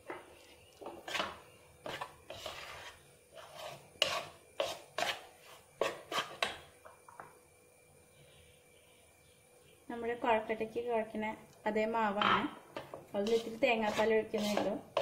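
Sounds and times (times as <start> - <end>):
spoon scraping flour in a bowl: 0.4 - 6.6, 12.8 - 15.0.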